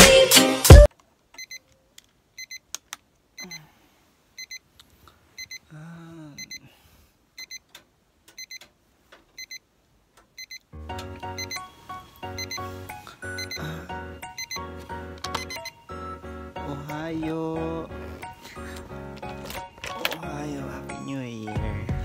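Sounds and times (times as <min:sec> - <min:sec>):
music with a beat: 0:00.0 - 0:00.9, 0:21.6 - 0:22.0.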